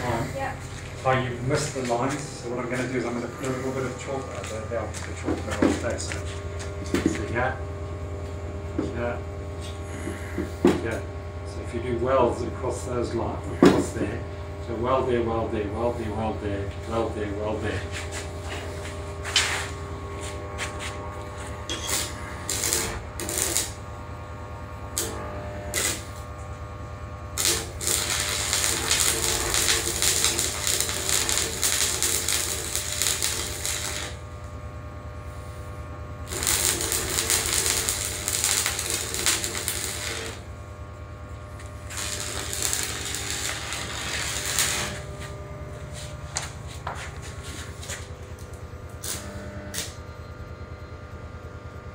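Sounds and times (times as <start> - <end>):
welding arc crackling: 0.0 - 7.4, 17.2 - 50.0
welding arc strikes: 0.0 - 7.5, 17.0 - 24.0, 24.9 - 34.6, 35.4 - 50.0
steady low hum: 0.0 - 51.9.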